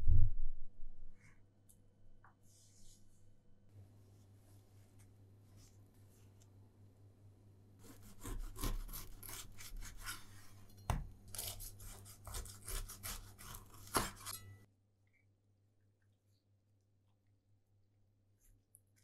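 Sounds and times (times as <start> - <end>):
knife sawing through crusty bread: 7.8 - 10.6, 11.3 - 14.5.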